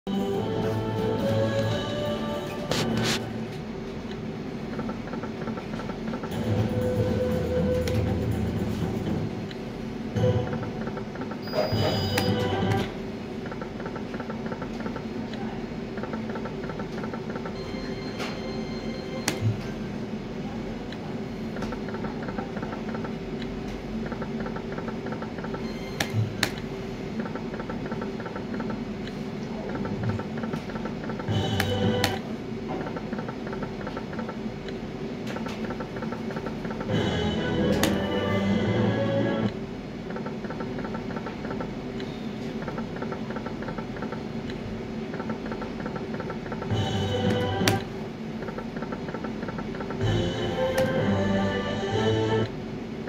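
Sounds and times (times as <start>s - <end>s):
steady low hum: 0.1s - 53.0s
slot machine jingle: 6.3s - 8.8s, 11.4s - 12.9s, 17.6s - 19.3s, 46.7s - 47.6s, 50.0s - 52.4s
high electronic ticks: 21.6s - 26.5s, 27.2s - 29.2s, 32.9s - 37.0s, 39.5s - 47.0s, 48.4s - 50.9s.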